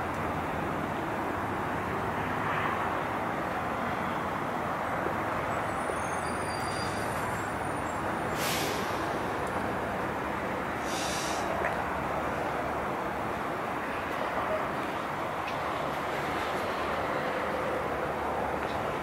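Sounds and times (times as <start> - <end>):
diesel trucks rumbling: 0.0 - 19.0
compressed air hisses: 8.4 - 9.1, 10.8 - 11.5.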